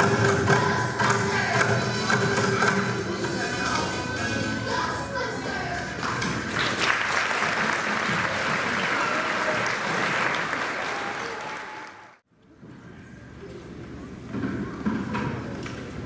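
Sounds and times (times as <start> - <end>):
audience applauding: 6.5 - 12.2.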